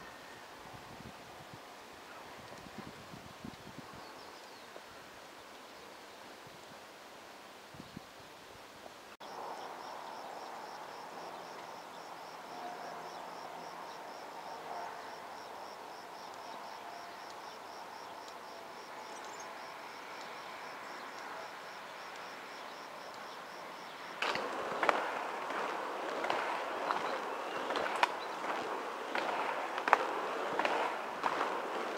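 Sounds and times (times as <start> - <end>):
insect chirping: 9.2 - 31.9.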